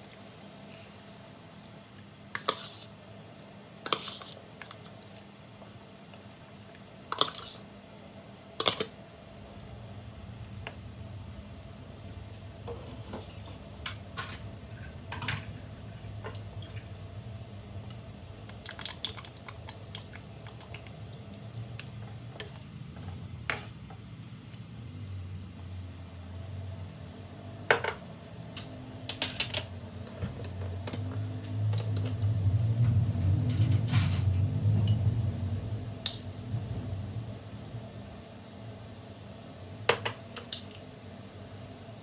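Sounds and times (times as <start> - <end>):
broth rumbling in a wok: 5.8 - 24.3, 29.7 - 42.0.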